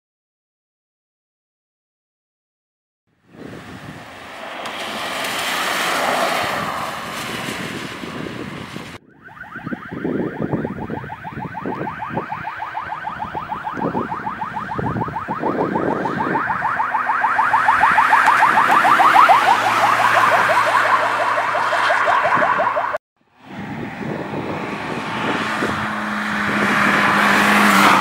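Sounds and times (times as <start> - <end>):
car engine: 3.1 - 9.3, 11.0 - 28.0
vehicle driving past: 3.5 - 9.0, 15.8 - 28.0
fast warbling siren: 9.0 - 23.0, 25.2 - 28.0.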